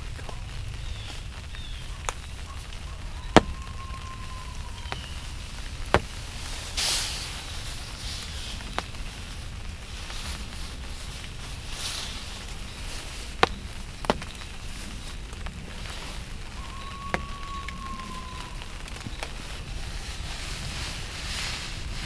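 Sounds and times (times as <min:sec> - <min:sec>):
clothing rustling: 0:18.3 - 0:22.0.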